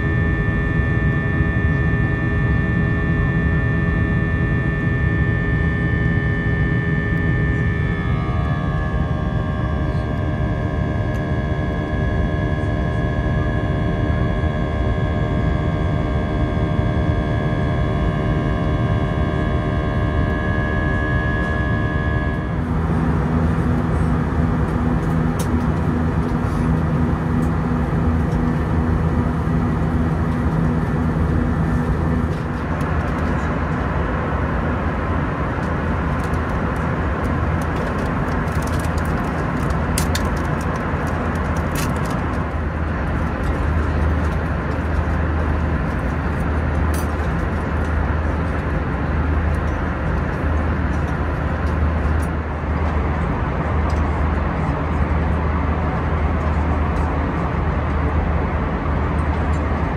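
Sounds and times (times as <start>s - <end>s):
airplane cabin engine roar: 0.0s - 59.9s.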